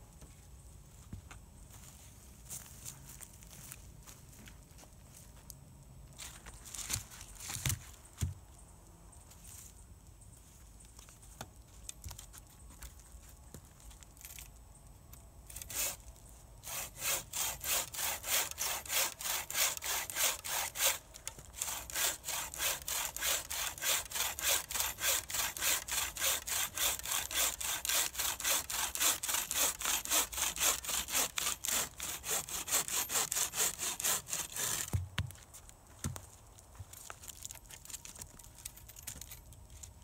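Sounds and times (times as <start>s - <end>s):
bucksaw cutting log: 15.5s - 16.0s, 16.6s - 35.3s.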